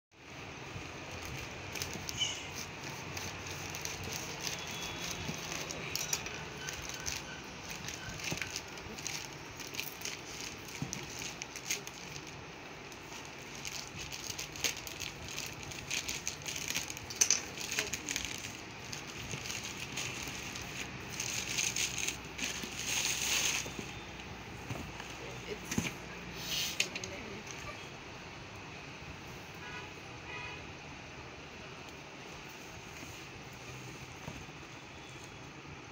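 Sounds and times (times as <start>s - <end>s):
plastic pouch crinkling: 1.1s - 24.0s.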